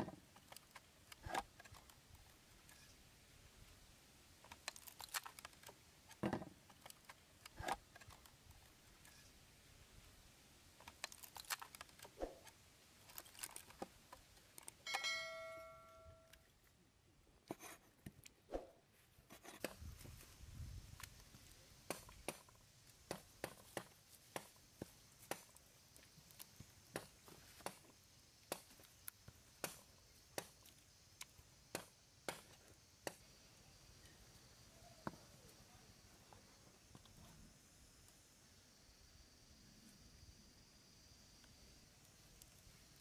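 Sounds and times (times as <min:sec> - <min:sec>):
brief ringing tone: 0:14.9 - 0:16.3.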